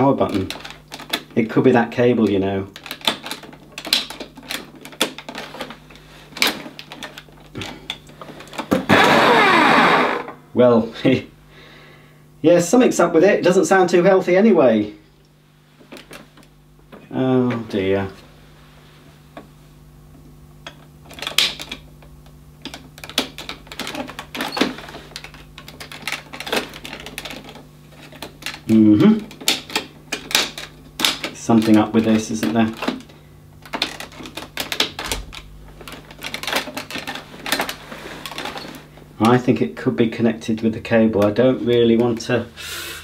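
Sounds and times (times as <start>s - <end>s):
electrical clicking and crackling: 0.0s - 10.4s, 20.2s - 42.5s
faint steady hum: 0.0s - 43.0s
vacuum cleaner humming: 8.2s - 10.5s, 42.4s - 43.0s.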